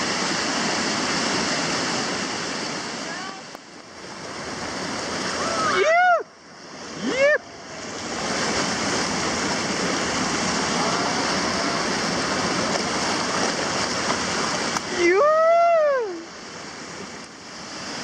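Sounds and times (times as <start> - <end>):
whitewater rapids rushing: 0.0 - 18.0
person yelling: 5.4 - 6.3, 7.0 - 7.4, 14.9 - 16.3.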